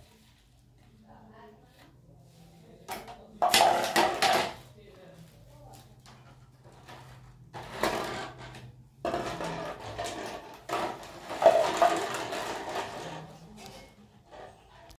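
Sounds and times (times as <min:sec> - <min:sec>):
plastic bottles knocking on concrete: 0:02.9 - 0:04.7, 0:06.0 - 0:13.5.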